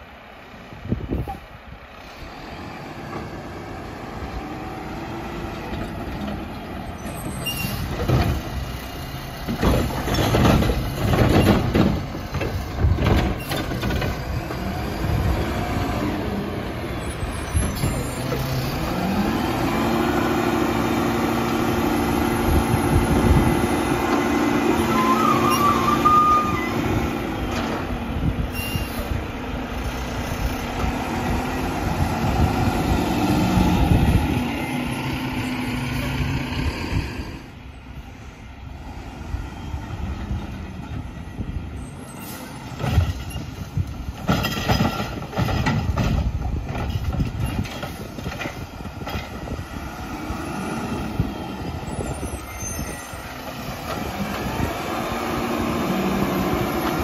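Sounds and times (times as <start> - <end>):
garbage truck driving past: 1.5 - 43.8, 48.0 - 57.0
knocks and clanks: 7.2 - 8.6, 9.4 - 14.7, 42.7 - 49.4.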